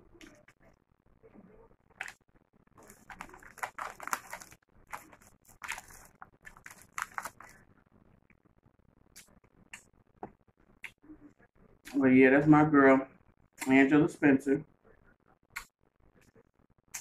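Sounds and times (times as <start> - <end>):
foil chip bag crinkling: 2.8 - 7.6.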